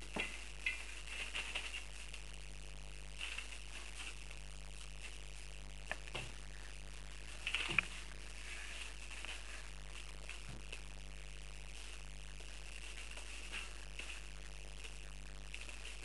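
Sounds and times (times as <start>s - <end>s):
paws crinkling newspaper: 0.0s - 2.4s, 7.0s - 10.8s, 11.7s - 16.0s
steady low hum: 0.0s - 16.0s.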